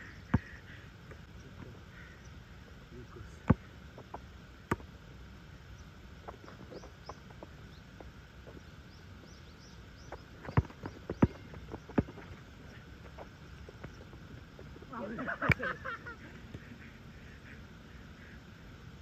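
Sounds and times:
faint birds chirping: 0:00.0 - 0:19.0
basketball bouncing on asphalt: 0:00.3 - 0:00.6, 0:03.4 - 0:04.9, 0:10.0 - 0:14.2.

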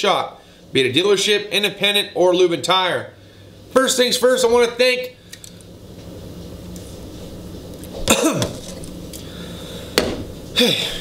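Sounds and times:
steady low hum: 0:00.0 - 0:11.0
man coughing: 0:08.0 - 0:08.7, 0:10.6 - 0:11.0.

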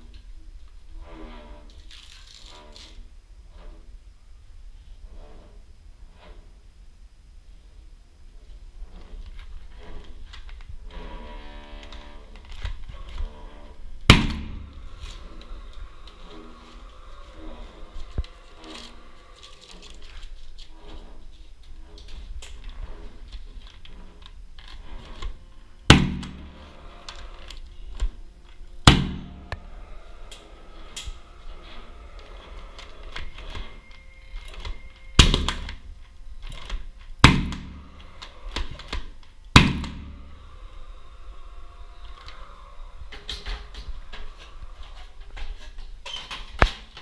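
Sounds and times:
nailer firing sharp bangs: 0:14.1 - 0:14.7, 0:25.9 - 0:26.6, 0:28.8 - 0:29.4, 0:37.2 - 0:37.9, 0:39.6 - 0:40.2.

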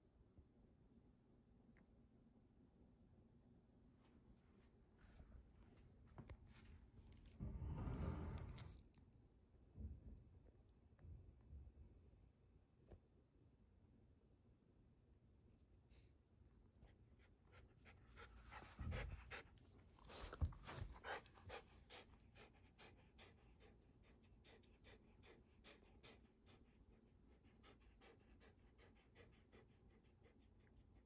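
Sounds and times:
dog panting: 0:16.8 - 0:31.0
thumps and rustles: 0:20.1 - 0:21.1.

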